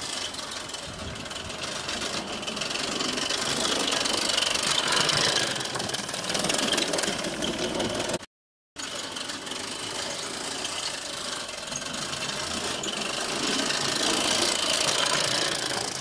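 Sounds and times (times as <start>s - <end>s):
model steam locomotive chuffing: 0.0s - 16.0s.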